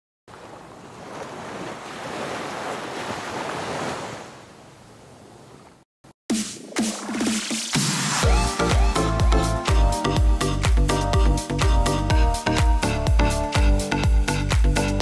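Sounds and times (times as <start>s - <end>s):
ocean wave washing in: 0.3s - 4.5s
music: 6.3s - 15.0s.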